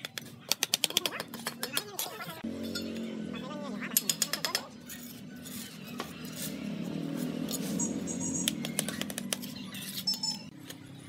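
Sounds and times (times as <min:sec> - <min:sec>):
brick and metal clinks: 0:01.4 - 0:05.8.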